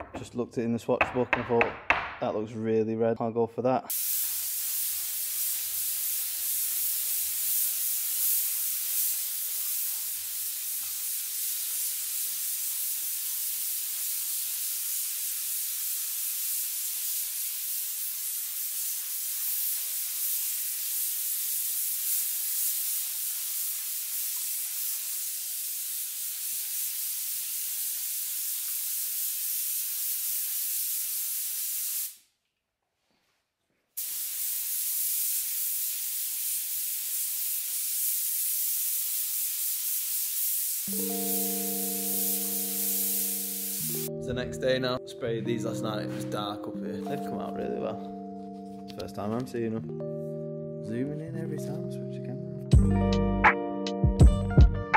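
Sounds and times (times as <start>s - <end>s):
spray gun hissing: 3.9s - 32.3s, 34.0s - 44.1s.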